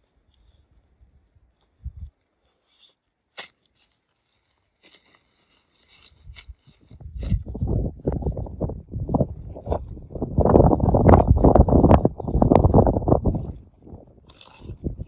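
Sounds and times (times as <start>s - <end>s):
fabric and bag rustling: 0.0s - 8.6s
wind buffeting microphone: 1.8s - 2.1s, 6.1s - 15.0s.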